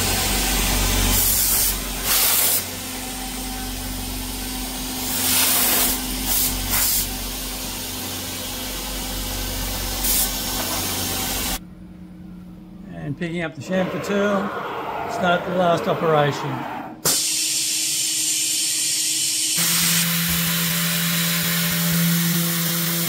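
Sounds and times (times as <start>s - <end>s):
compressed air blow gun hissing: 1.1s - 2.8s, 5.0s - 7.2s, 9.9s - 10.6s.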